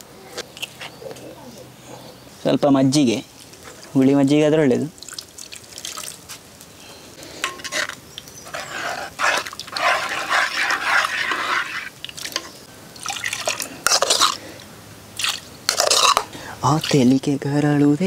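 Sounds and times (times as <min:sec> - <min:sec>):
liquid sloshing and splashing: 0:05.0 - 0:06.3, 0:13.0 - 0:14.4, 0:15.2 - 0:17.2
ladle stirring liquid in a pot: 0:07.4 - 0:14.4, 0:15.2 - 0:17.2.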